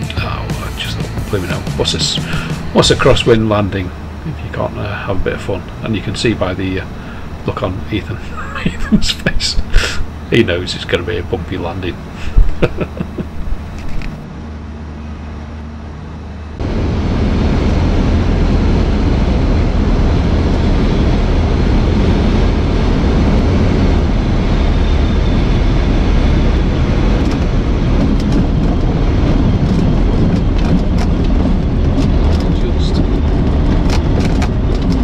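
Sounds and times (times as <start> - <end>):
aircraft engine and propeller droning: 0.0 - 35.0
rough rush of wind noise: 16.6 - 35.0.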